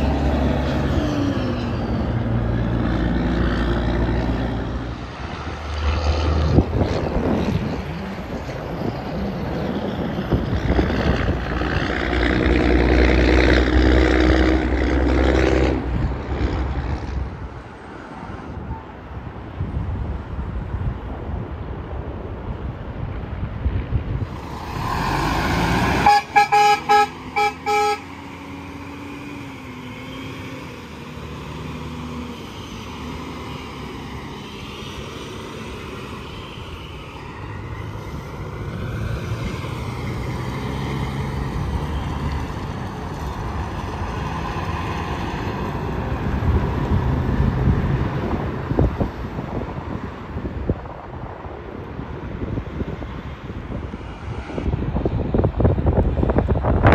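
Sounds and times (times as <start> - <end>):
vehicle rushing by: 0.0 - 18.6, 24.2 - 50.6
highway traffic passing: 0.0 - 56.9
truck horn honking: 25.8 - 28.2.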